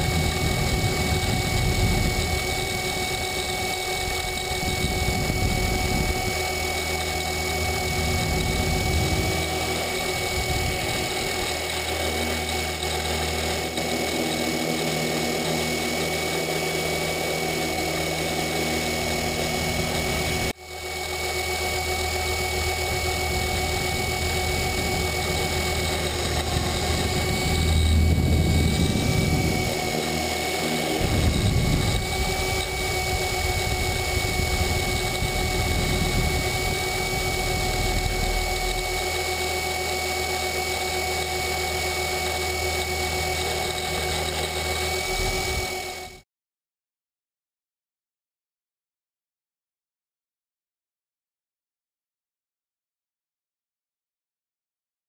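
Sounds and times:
rc helicopter motor and rotor whine: 0.0 - 46.2.

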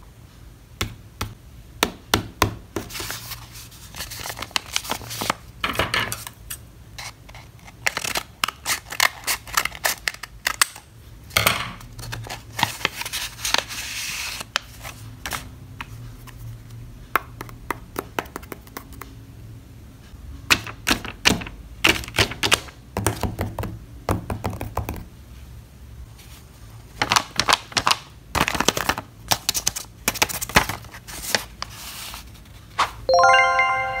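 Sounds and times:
paper rustling and crinkling: 2.8 - 5.4, 12.0 - 16.7, 26.2 - 33.0.

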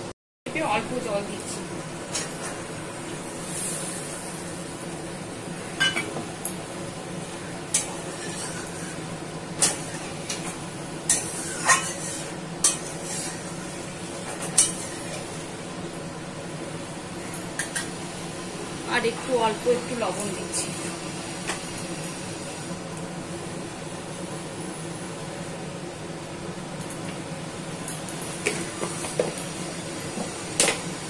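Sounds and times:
steady background hum: 0.0 - 31.0
metal spatula scraping a pan: 8.1 - 8.9, 11.1 - 13.4.

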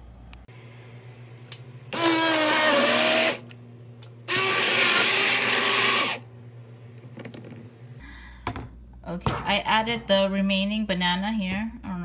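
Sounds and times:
immersion blender motor whining: 1.9 - 3.4, 4.3 - 6.2.

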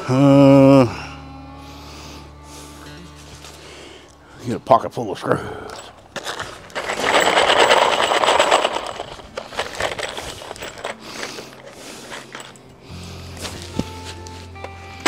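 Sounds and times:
screws rattling and clinking: 5.7 - 14.2.

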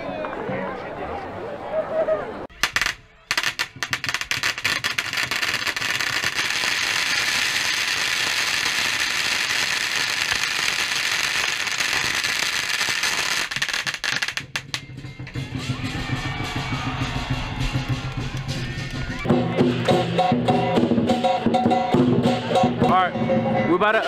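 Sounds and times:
firecrackers crackling: 2.5 - 14.9.

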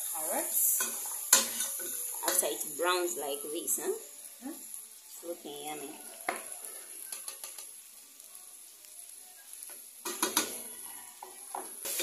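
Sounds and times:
food sizzling in pan: 0.0 - 12.0
spoon knocking against pan: 10.0 - 10.6.

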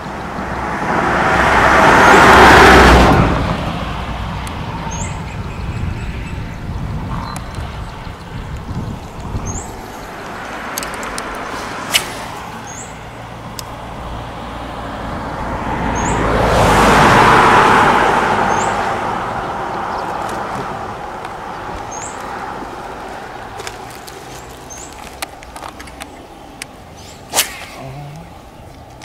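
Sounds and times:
road vehicle passing: 0.0 - 29.0
sharp click: 10.7 - 12.8.

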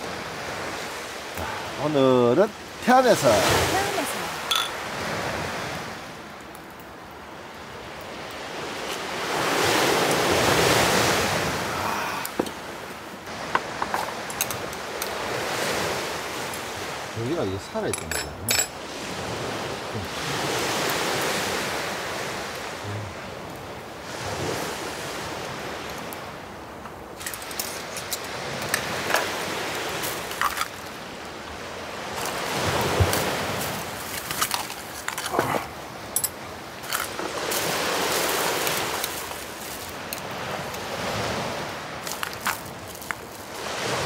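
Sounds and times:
sea waves washing ashore: 0.0 - 44.0
light clicks and clinks: 17.8 - 18.8, 27.2 - 29.3, 36.1 - 37.2.

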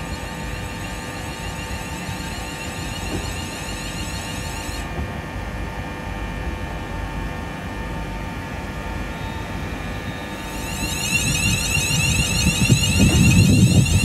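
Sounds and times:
train rumbling: 0.0 - 4.8, 10.4 - 14.0
high rising whine: 0.0 - 5.5, 8.6 - 14.0
train electrical hum: 0.0 - 14.0.

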